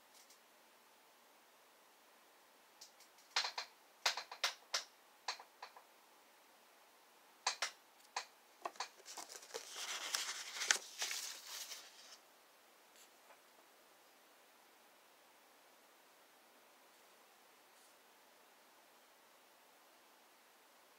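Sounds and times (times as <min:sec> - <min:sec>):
paper rustling and sliding: 0:08.6 - 0:12.2.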